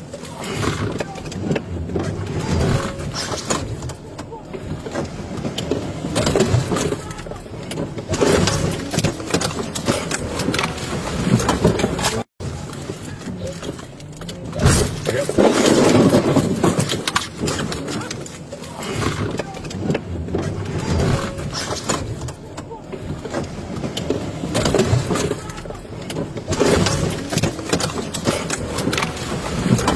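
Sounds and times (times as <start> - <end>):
car engine under load: 0.0 - 29.9
knocks and clatter: 0.0 - 29.9.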